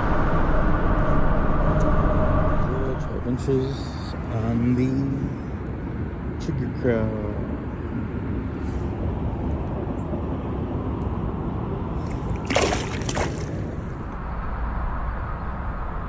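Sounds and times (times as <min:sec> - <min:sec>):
fish splashing in water: 0:12.0 - 0:14.1.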